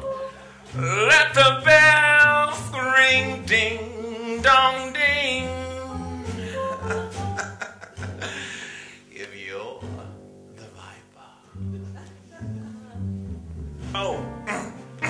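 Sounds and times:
upright bass: 0.0s - 15.0s
man singing jazz song: 0.7s - 11.6s.

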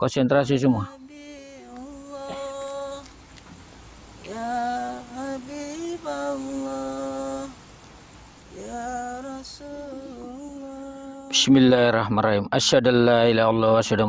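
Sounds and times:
person humming a slow melody: 0.8s - 3.2s, 4.1s - 7.6s, 8.4s - 11.4s.

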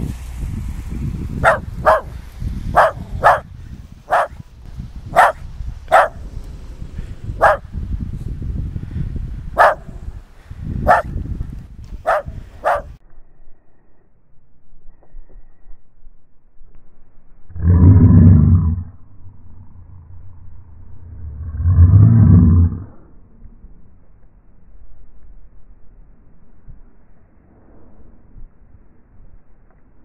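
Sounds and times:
low rumble: 0.0s - 30.0s
dog barking: 1.4s - 2.1s, 2.8s - 3.5s, 4.1s - 4.4s, 5.1s - 6.2s, 7.4s - 7.6s, 9.6s - 10.0s, 10.9s - 11.1s, 12.0s - 12.9s.

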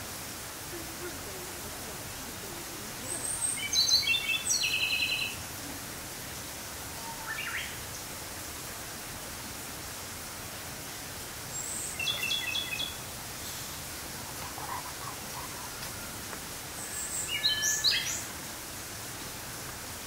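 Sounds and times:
background hiss: 0.0s - 20.0s
bird singing: 3.1s - 5.4s, 7.0s - 7.8s, 11.5s - 13.0s, 16.8s - 18.3s.

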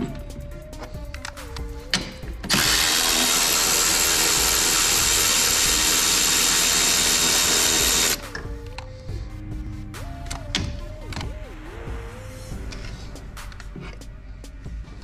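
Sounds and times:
power tool hissing whir: 2.5s - 8.2s.

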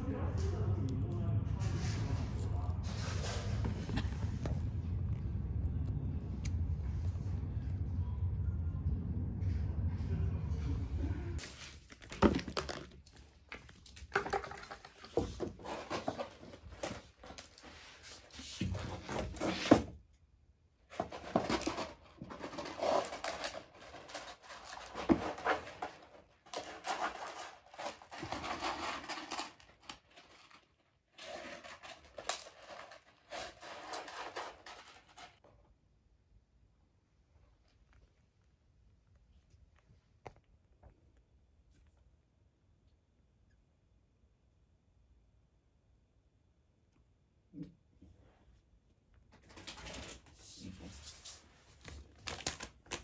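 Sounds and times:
kitten scratching in cat litter: 1.4s - 4.9s, 20.9s - 35.4s.

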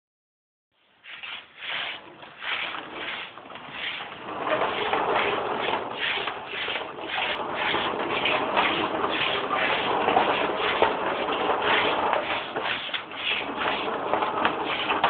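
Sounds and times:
baby walker rolling on hard floor: 1.0s - 15.0s
rhythmic scuffing: 4.7s - 15.0s.

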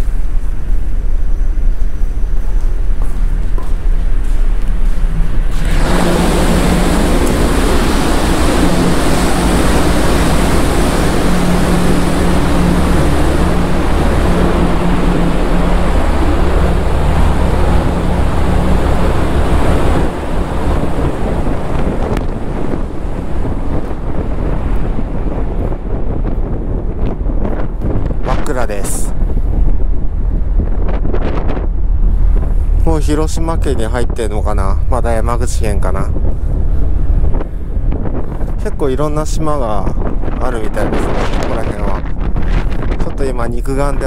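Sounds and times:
rush of the sea: 0.0s - 44.0s
ship engine hum: 0.0s - 44.0s
wind rushing over microphone: 0.0s - 44.0s.

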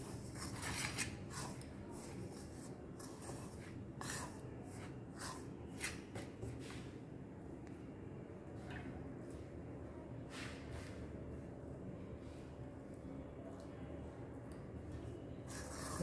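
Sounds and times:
spoon scraping dough in a bowl: 0.0s - 6.9s, 15.4s - 16.0s.

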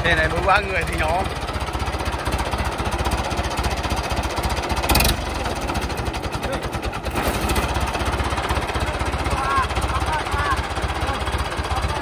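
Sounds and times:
diesel tractor engine idling: 0.0s - 12.0s.

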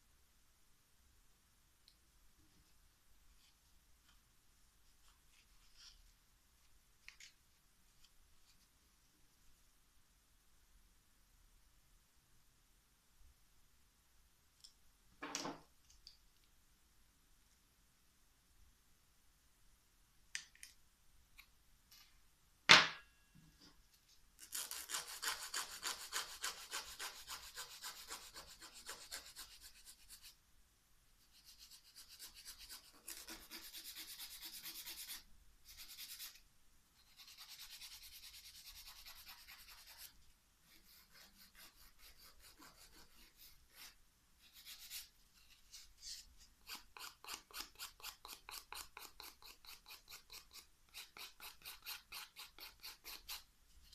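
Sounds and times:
nail file rasping: 24.4s - 30.3s, 31.4s - 36.4s, 46.6s - 53.5s.

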